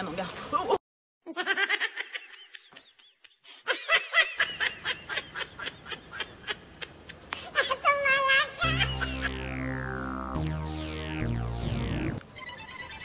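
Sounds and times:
cackling laughter: 0:01.3 - 0:07.2.

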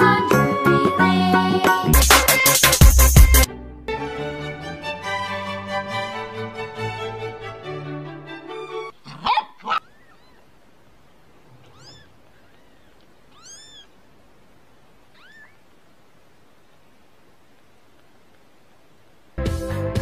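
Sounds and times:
background music: 0:00.0 - 0:08.9, 0:19.4 - 0:20.0
kittens mewing: 0:08.9 - 0:10.5, 0:11.4 - 0:14.1, 0:15.0 - 0:15.8.

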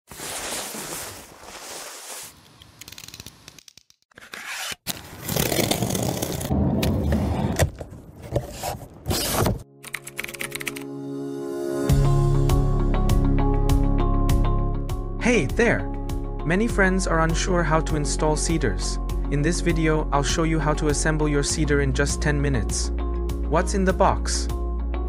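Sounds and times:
utility knife slicing packing tape: 0:02.6 - 0:06.5
soft background music: 0:09.6 - 0:25.0.

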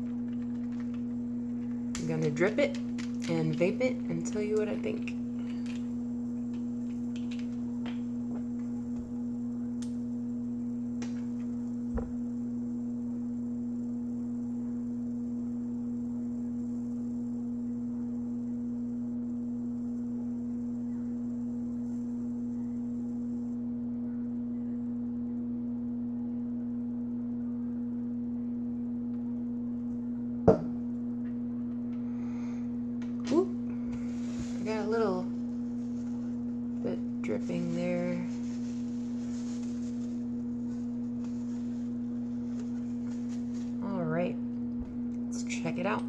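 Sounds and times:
electrical hum: 0:00.0 - 0:46.0.

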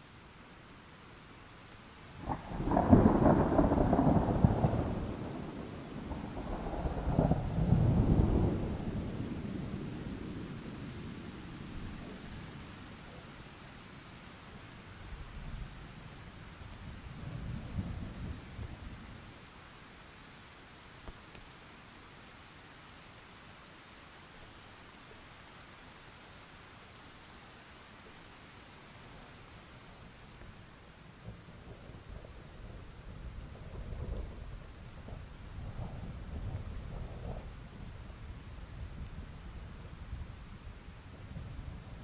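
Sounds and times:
rain hiss: 0:00.0 - 0:42.0
thunder rumbling: 0:02.2 - 0:11.2, 0:31.2 - 0:40.4.

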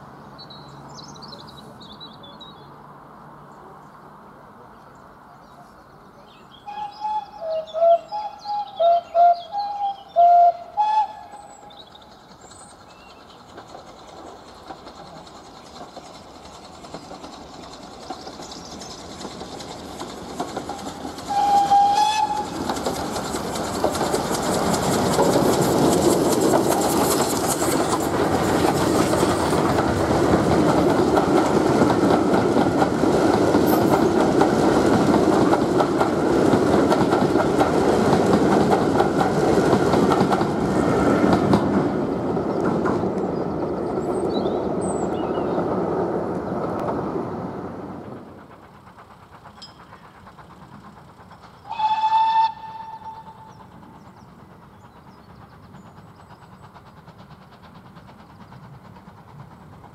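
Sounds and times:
train rumble and wheel clatter: 0:00.0 - 0:59.9
steam train whistle: 0:06.7 - 0:11.6, 0:21.3 - 0:22.6, 0:51.6 - 0:53.7.

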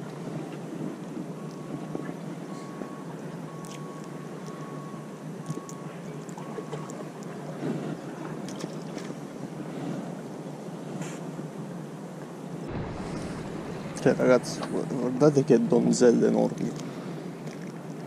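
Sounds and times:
wind: 0:00.0 - 0:18.0
water against rocks: 0:05.4 - 0:09.5, 0:12.7 - 0:18.0.

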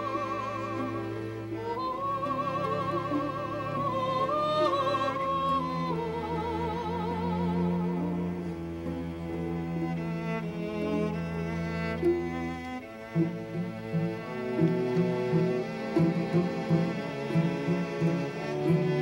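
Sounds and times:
cellos holding low notes: 0:00.0 - 0:19.0.

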